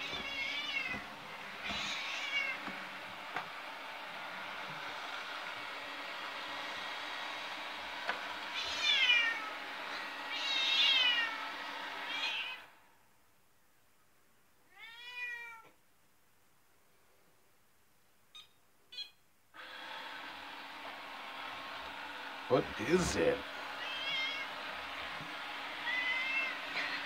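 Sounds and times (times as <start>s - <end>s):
cat meowing: 0.0s - 1.0s, 1.7s - 2.6s, 8.6s - 9.5s, 10.3s - 11.4s, 12.1s - 12.7s, 14.7s - 15.8s, 23.8s - 24.5s, 25.8s - 27.0s
robot vacuum humming: 0.0s - 12.4s, 19.6s - 27.0s.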